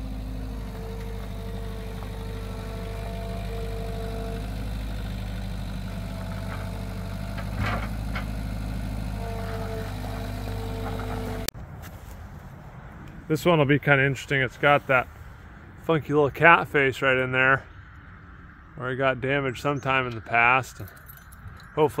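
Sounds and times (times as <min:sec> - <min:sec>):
hydraulic whine: 0:00.0 - 0:11.5
loader engine running: 0:00.0 - 0:11.5
metal clunk: 0:05.9 - 0:08.5.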